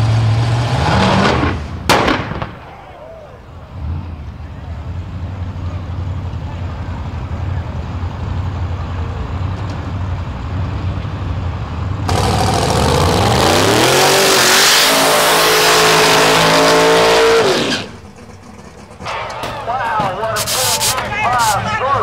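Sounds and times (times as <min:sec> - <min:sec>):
car engine revving: 0:12.0 - 0:21.6
tyres spinning hiss: 0:16.4 - 0:21.6.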